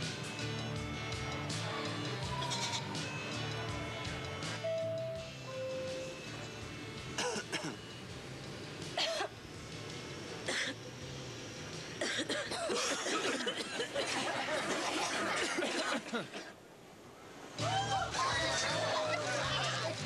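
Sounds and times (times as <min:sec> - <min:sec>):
light music: 0:00.0 - 0:13.6, 0:17.5 - 0:20.0
jumble of voices: 0:01.6 - 0:04.6, 0:17.6 - 0:20.0
people coughing: 0:07.2 - 0:07.9, 0:09.0 - 0:09.4, 0:10.5 - 0:10.8, 0:12.0 - 0:16.6.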